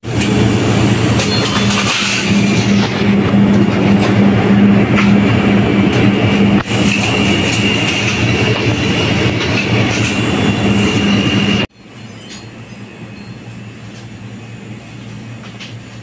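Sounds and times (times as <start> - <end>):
low hum of store machinery: 11.7 - 16.0.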